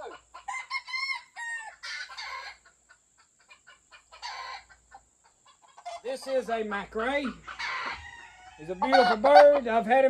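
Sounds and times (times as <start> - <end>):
roosters crowing: 0.0 - 2.6, 4.1 - 4.8, 7.1 - 9.9
roosters clucking: 0.0 - 10.0.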